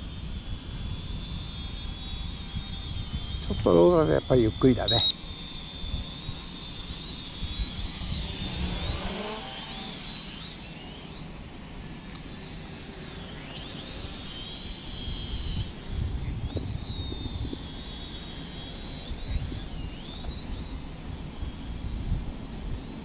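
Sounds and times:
wind rumbling on microphone: 0.0 - 5.1, 14.8 - 17.9, 19.1 - 23.0
drone propeller whine: 0.0 - 23.0.

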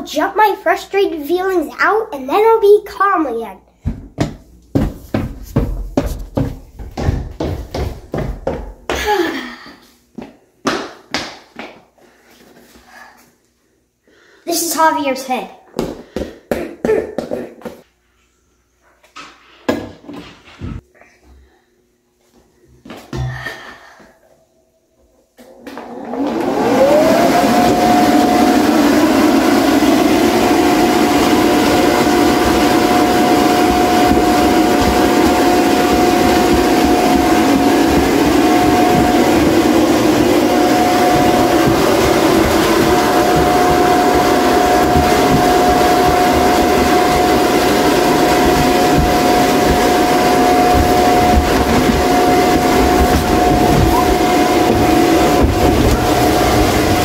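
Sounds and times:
electric blower motor whine: 25.4 - 57.0.

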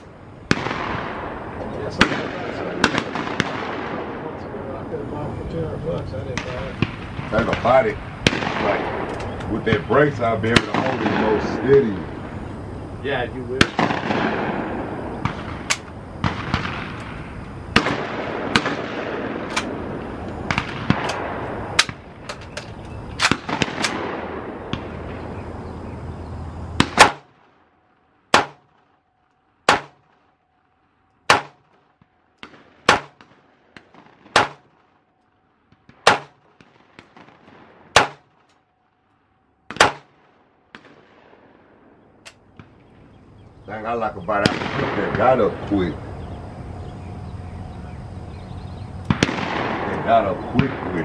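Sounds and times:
pistol gunshots: 0.0 - 4.3, 6.3 - 11.9, 13.5 - 22.6, 23.2 - 25.2, 26.8 - 27.6, 28.3 - 28.9, 29.6 - 30.3, 31.2 - 35.0, 35.7 - 38.5, 39.6 - 42.9, 44.3 - 45.9, 49.1 - 51.0.

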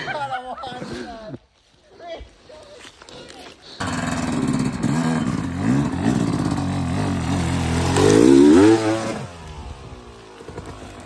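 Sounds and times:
dirt bike engine revving: 3.8 - 11.0.

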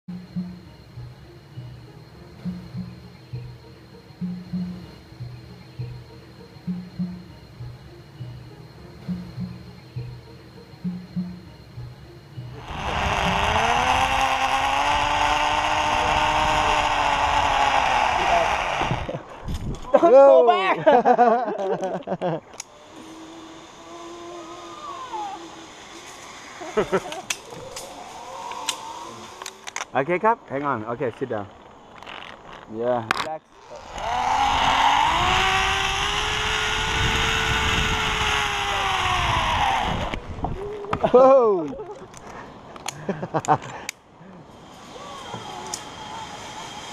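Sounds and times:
pulley whirring whine: 12.5 - 19.6, 22.5 - 29.9, 33.5 - 40.6, 44.5 - 46.9
wind rumble on microphone: 18.8 - 19.9, 34.2 - 41.0
rushing hiss: 22.6 - 29.7, 44.5 - 46.9.

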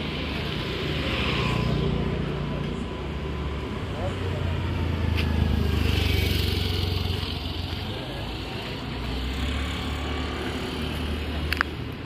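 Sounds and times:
vehicle engine passing by: 3.3 - 11.5.

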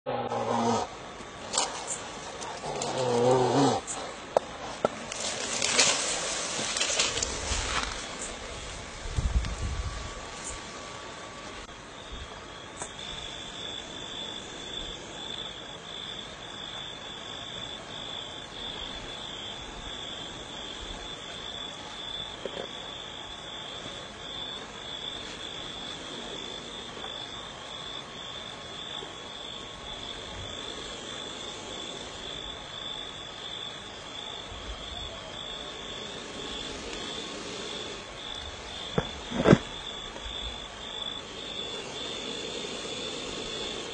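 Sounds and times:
hissing noise: 0.3 - 15.2, 35.5 - 43.9.

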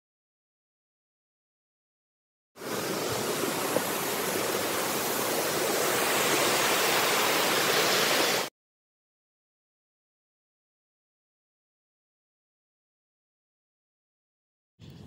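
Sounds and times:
waterfall and creek rushing: 2.6 - 8.5.

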